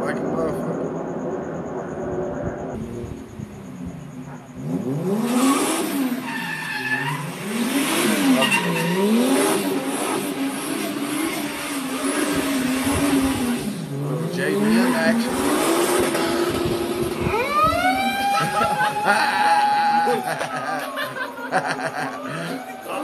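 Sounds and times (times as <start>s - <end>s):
car engine revving: 0.0s - 23.0s
tyres squealing: 6.1s - 9.9s.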